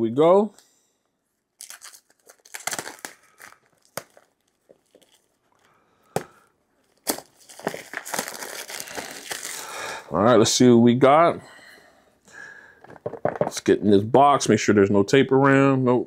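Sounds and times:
packaging torn and crinkled: 1.6s - 5.7s, 6.8s - 9.8s.

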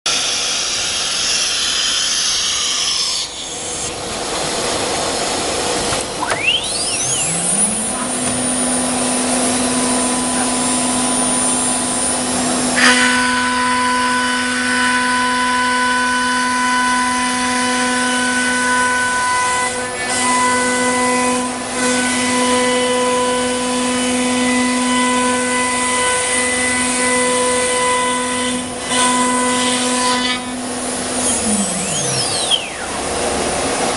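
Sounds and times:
router cutting wood: 0.1s - 33.9s
router spindle whine: 0.1s - 33.9s.

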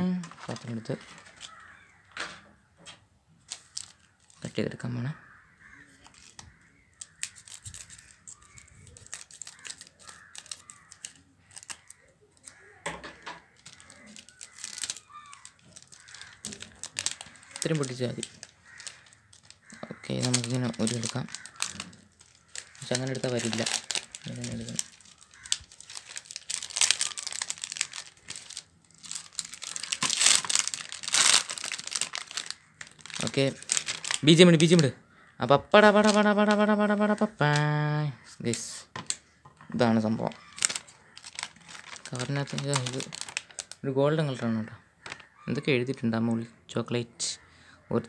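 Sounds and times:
wrapper crinkling: 0.0s - 2.0s, 3.4s - 4.8s, 5.6s - 12.7s, 13.4s - 34.9s, 35.8s - 37.8s, 39.8s - 44.4s, 45.0s - 45.3s.

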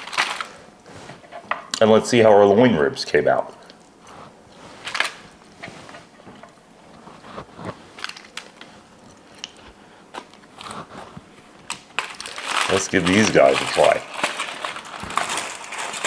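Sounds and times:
aluminium foil crinkling: 0.0s - 1.4s, 3.6s - 16.0s.

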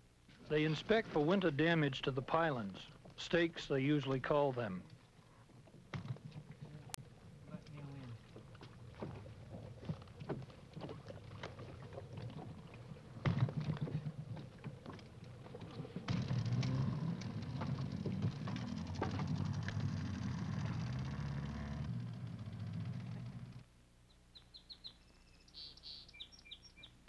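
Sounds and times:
water slapping boat: 5.6s - 20.1s
low engine rumble: 6.4s - 23.7s.

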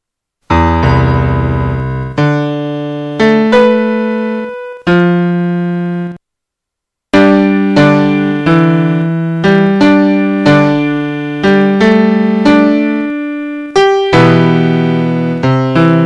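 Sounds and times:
slow piano chords: 0.5s - 6.2s, 7.2s - 16.0s.

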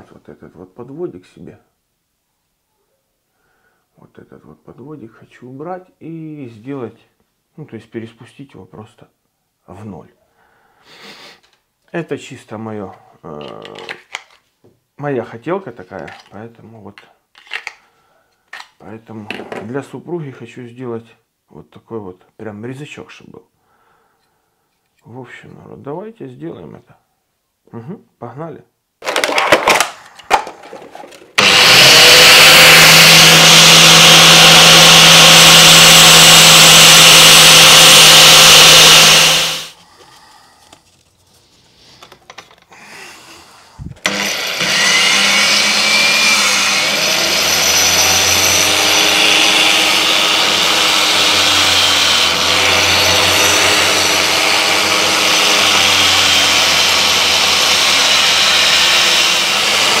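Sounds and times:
angle grinder belt sander running: 31.4s - 39.7s, 44.0s - 60.0s.

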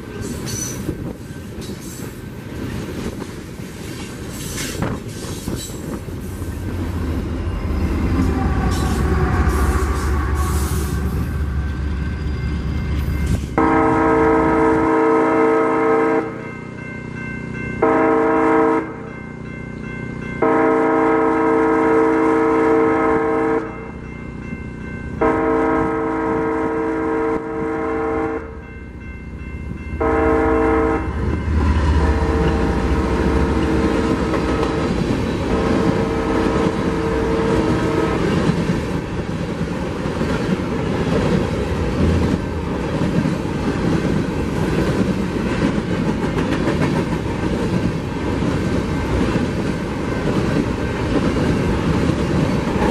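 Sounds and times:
locomotive heavy rumble: 2.4s - 14.8s, 29.8s - 52.9s
locomotive air horn: 8.1s - 11.7s, 13.6s - 16.4s, 17.8s - 19.0s, 20.4s - 23.8s, 25.2s - 28.6s, 30.0s - 31.3s, 31.9s - 34.3s, 35.5s - 38.3s
rolling clatter of hopper cars: 31.2s - 52.9s.

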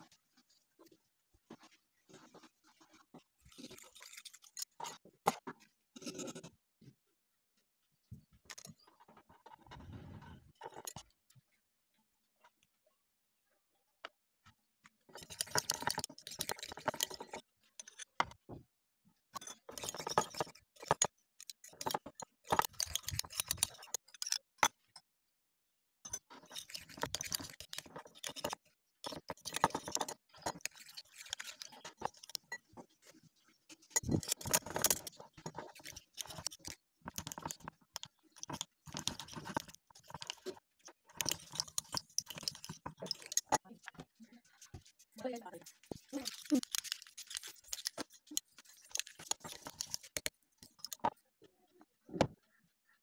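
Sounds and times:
spoon scraping glass bowl: 2.1s - 6.5s, 15.1s - 18.2s, 19.4s - 25.0s, 26.1s - 43.6s, 44.4s - 51.2s
sticky slime squelching: 44.1s - 51.0s.

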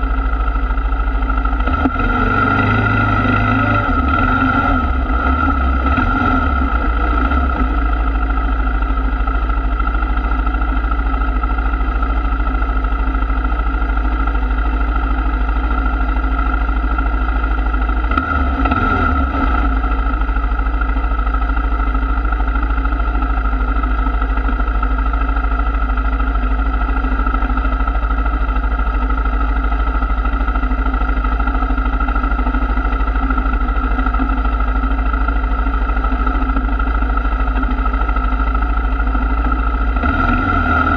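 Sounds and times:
atv engine idling: 0.0s - 40.9s.

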